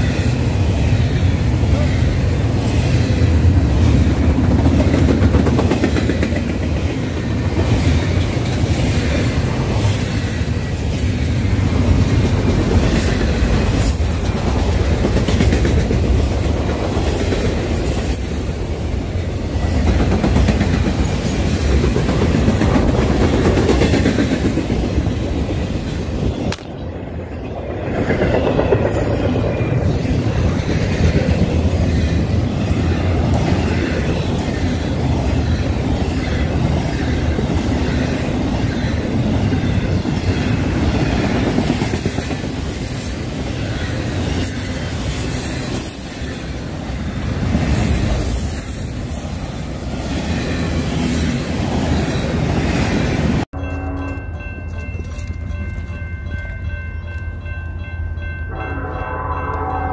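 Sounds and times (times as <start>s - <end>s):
train wheels rumbling on rail: 0.0s - 57.8s
clickety-clack over rail joints: 3.5s - 18.4s, 19.5s - 26.8s, 27.5s - 43.1s.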